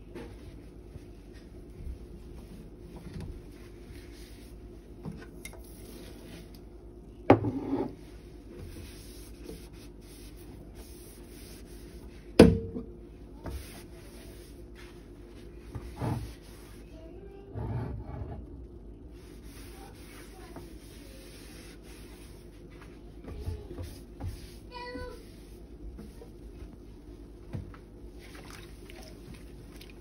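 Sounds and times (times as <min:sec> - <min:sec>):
cloth wiping steel sink: 0:00.4 - 0:04.6, 0:08.1 - 0:12.4, 0:13.3 - 0:16.9, 0:19.2 - 0:26.7.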